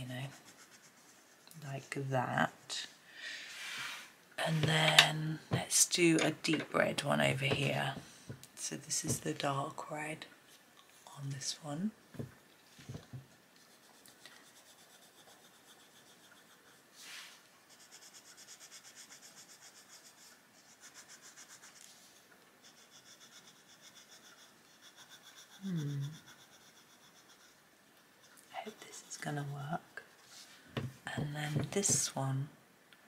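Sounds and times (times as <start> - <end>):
pencil scratching on paper: 0.0 - 2.7, 12.9 - 32.1.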